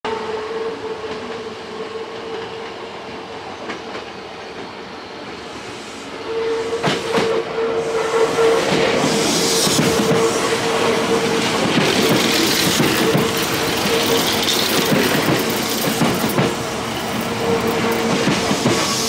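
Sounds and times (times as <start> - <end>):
train running sound: 0.6 - 19.0
train wheels clacking over joints: 11.2 - 19.0.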